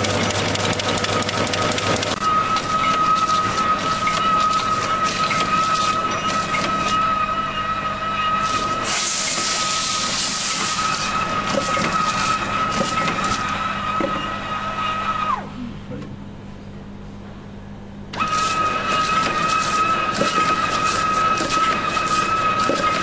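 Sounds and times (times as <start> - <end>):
mechanical clicking and clatter: 0.0 - 6.9
machine whine: 0.0 - 15.8, 18.1 - 23.0.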